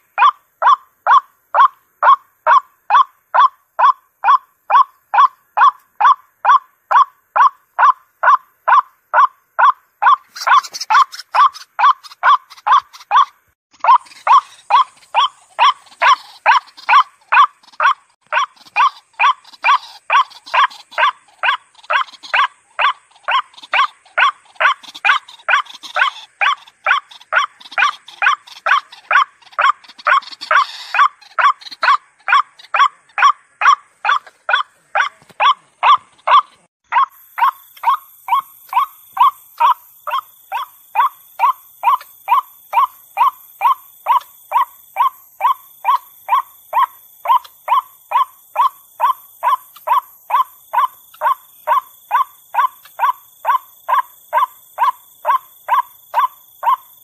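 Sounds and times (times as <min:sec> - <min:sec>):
waterhen calling: 0:00.0 - 0:56.9.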